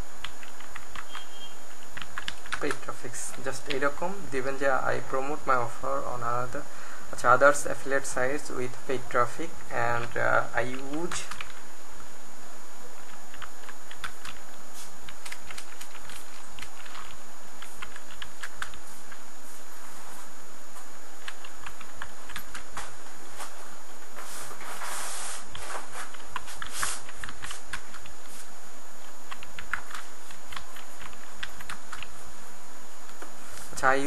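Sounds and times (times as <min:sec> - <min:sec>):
steady background hiss: 0:00.0 - 0:34.0
keyboard typing: 0:00.2 - 0:03.9, 0:10.0 - 0:11.6, 0:13.0 - 0:19.2, 0:21.2 - 0:22.8, 0:25.5 - 0:28.2, 0:29.0 - 0:32.2.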